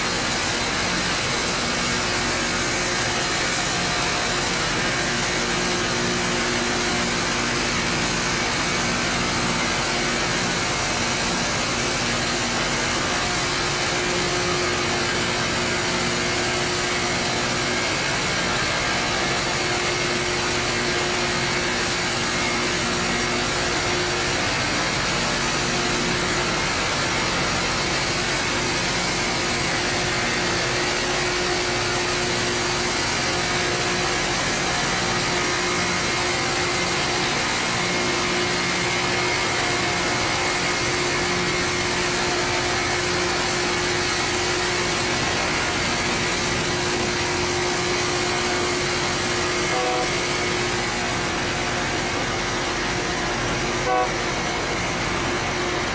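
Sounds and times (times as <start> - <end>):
grinding stones on rail: 29.0 - 55.9.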